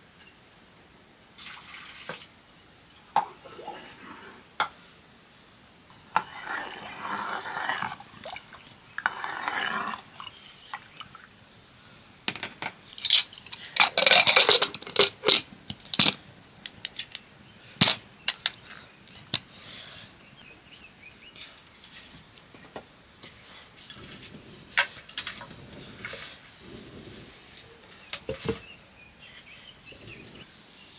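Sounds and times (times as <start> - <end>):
dishes and utensils clinking: 12.3 - 16.2.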